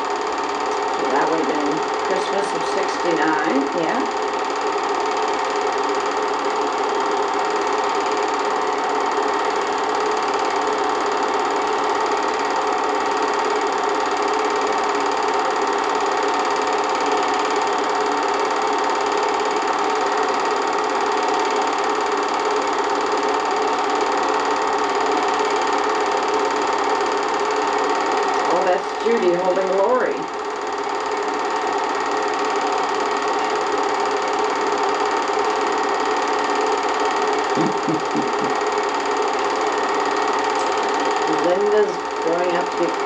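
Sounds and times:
film projector whirring: 0.0 - 43.0.

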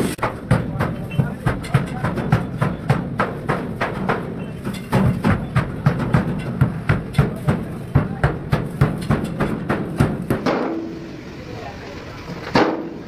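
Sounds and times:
rapid sharp knocks: 0.2 - 11.0.

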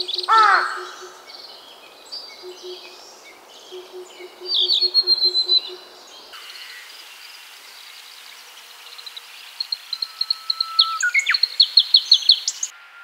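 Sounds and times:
warbler singing: 0.0 - 13.0.

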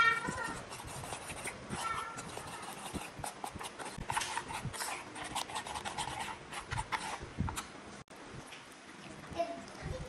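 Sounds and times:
spoon stirring thick batter: 0.0 - 7.8.

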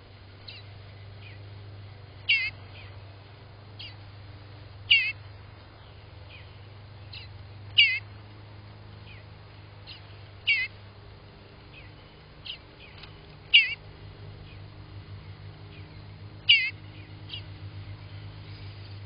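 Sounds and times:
faint bird calls: 0.0 - 3.1, 3.7 - 8.2, 9.0 - 10.9, 11.6 - 19.0
nestling bird wavering calls: 0.4 - 1.4, 2.2 - 3.0, 3.8 - 4.1, 4.8 - 5.3, 5.9 - 8.1, 9.0 - 10.8, 11.7 - 14.7, 15.7 - 17.6.

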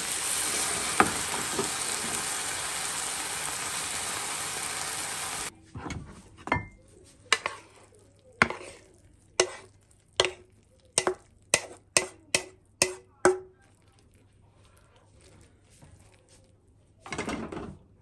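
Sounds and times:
frying pan and spatula knocking: 0.0 - 5.5.

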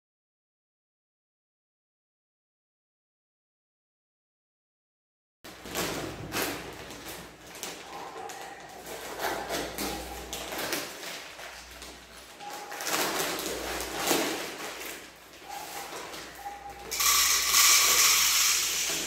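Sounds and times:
plastic packets rustling: 5.5 - 19.0
glass jars clinking: 16.3 - 19.0.

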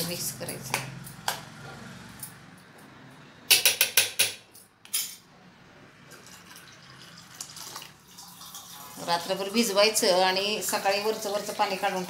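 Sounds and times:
water pouring into bowl: 6.2 - 9.4.

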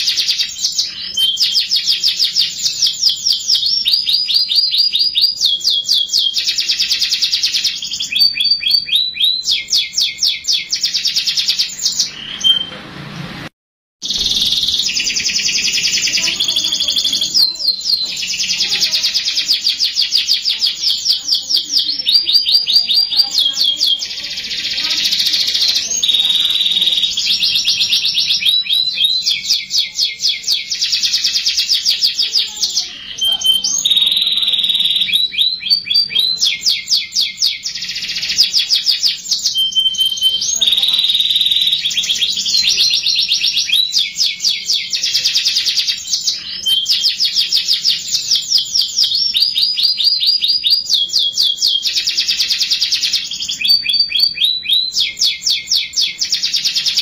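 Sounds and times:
canary whistles: 0.0 - 12.7, 33.1 - 57.0
canary singing trills: 0.0 - 12.8, 14.0 - 57.0.

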